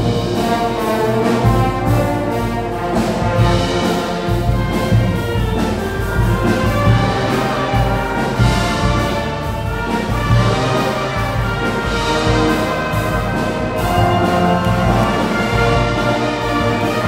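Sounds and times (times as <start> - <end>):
brass band playing: 0.0 - 17.0.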